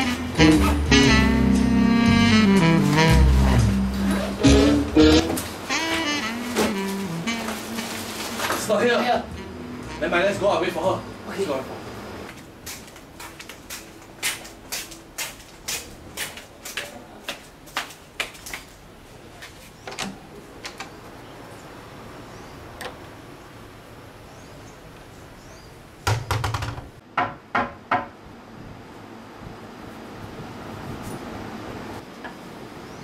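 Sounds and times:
footsteps on hard floor: 12.3s - 18.7s
loud knocks on a door: 26.0s - 28.2s.

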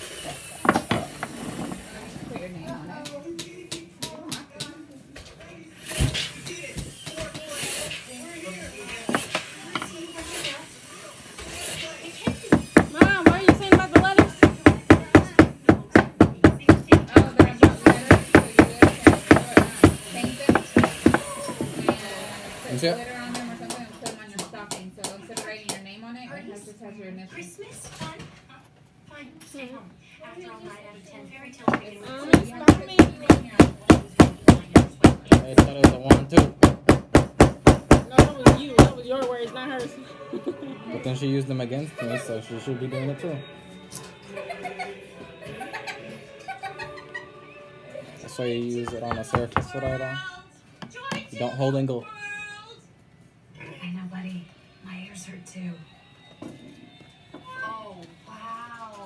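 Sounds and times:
rapid knocking on hard surface: 12.3s - 22.0s, 31.7s - 39.0s, 48.9s - 49.9s.

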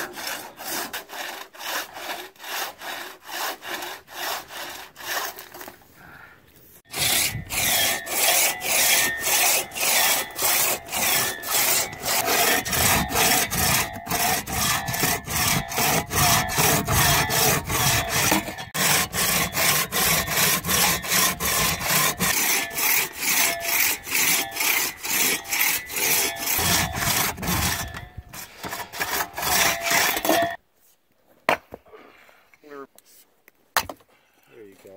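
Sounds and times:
crosscut saw rasping through log: 0.0s - 5.7s, 6.8s - 30.6s
faint ringing saw blade: 7.3s - 28.3s, 29.0s - 30.6s.

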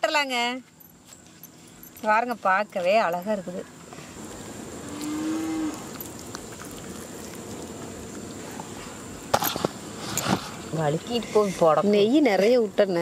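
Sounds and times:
cow mooing: 4.8s - 6.0s.

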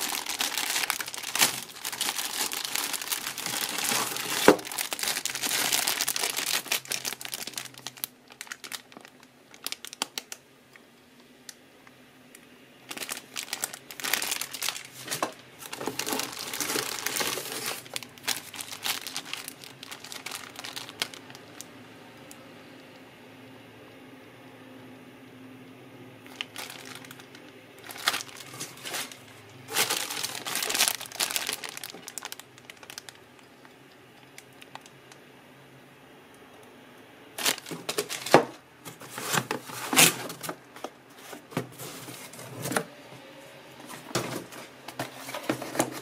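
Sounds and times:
plastic bags crinkling: 0.0s - 10.4s, 12.8s - 21.7s, 26.2s - 35.2s, 37.4s - 42.9s, 43.8s - 46.0s.

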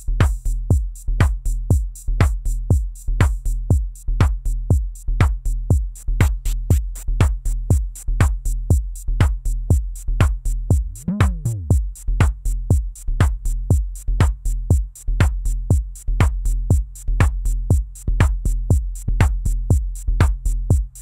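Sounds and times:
fast high ticks: 6.0s - 8.3s
pitched synth drum hits: 10.8s - 11.9s.

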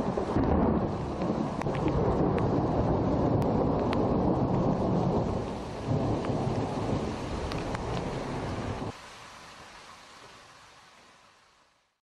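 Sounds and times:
thunder rumbling: 0.0s - 9.0s
rain falling: 0.0s - 12.0s
sharp ticks of raindrops: 0.0s - 12.0s.

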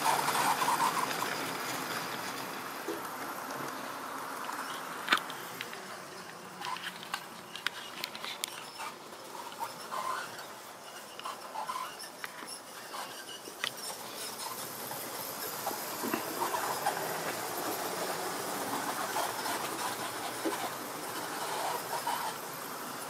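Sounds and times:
model train rumbling on track: 0.0s - 23.0s
brief squeaks: 6.6s - 14.6s.

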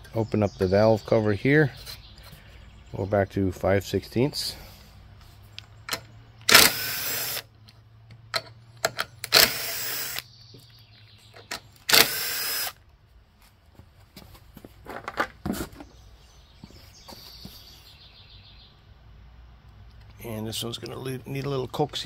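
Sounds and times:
bolts clinking: 5.5s - 6.8s, 7.6s - 9.6s
cordless drill spinning bolts: 5.9s - 7.5s, 8.8s - 10.2s, 11.8s - 12.8s.

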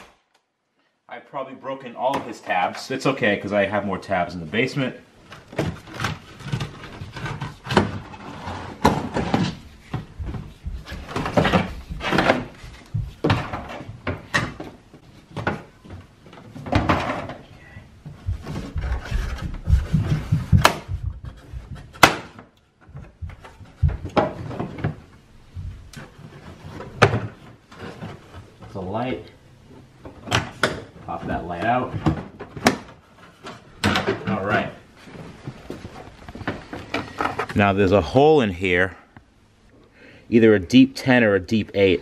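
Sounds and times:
plastic trim scraping and knocking: 5.3s - 17.4s.

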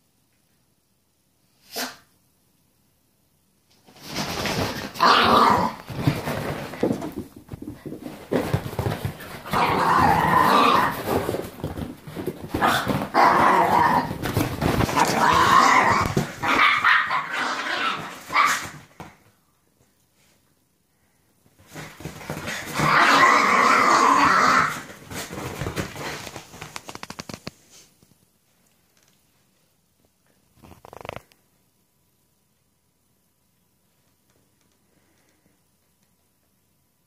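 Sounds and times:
dogs growling and barking: 4.4s - 6.8s, 8.4s - 18.8s, 22.3s - 25.4s.

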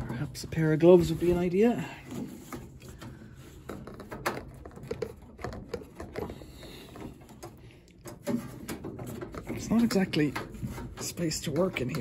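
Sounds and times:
hands clicking inside dryer cabinet: 2.6s - 12.0s.

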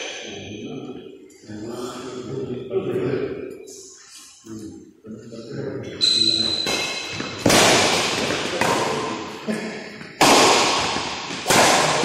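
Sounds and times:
rackets hitting shuttlecock: 6.4s - 9.3s, 10.0s - 12.0s.

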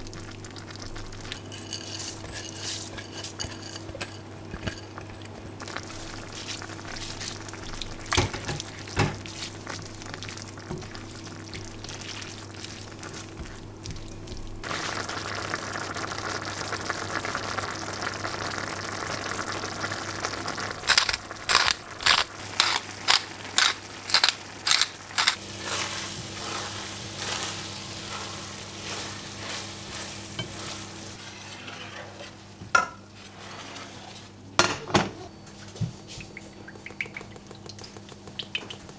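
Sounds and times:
spatula scraping a pan: 1.4s - 3.9s, 20.9s - 32.4s, 33.2s - 34.4s
meat and rice sizzling in a pan: 5.6s - 31.2s.

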